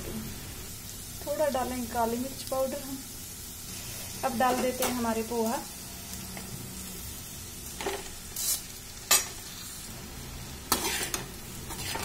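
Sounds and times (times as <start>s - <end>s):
frying sizzle: 0.0s - 12.0s
metal spatula scraping a pan: 10.7s - 12.0s.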